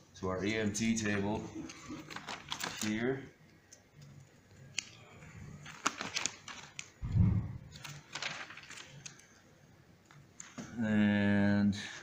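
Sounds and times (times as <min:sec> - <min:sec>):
book pages turning: 0:01.0 - 0:03.0, 0:04.5 - 0:09.4.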